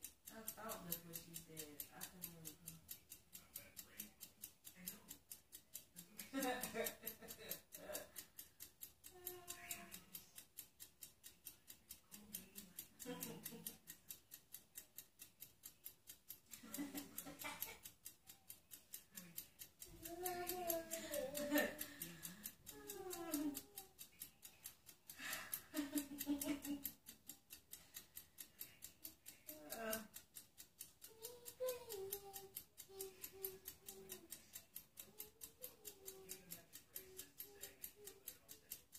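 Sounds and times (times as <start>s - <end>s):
rapid ticking: 0.0s - 38.9s
faint voice: 31.1s - 38.8s.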